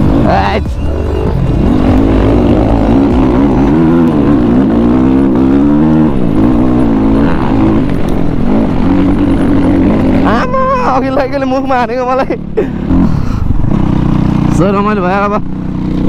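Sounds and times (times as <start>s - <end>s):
low rumble: 0.0s - 12.0s
dirt bike engine revving: 0.0s - 16.0s.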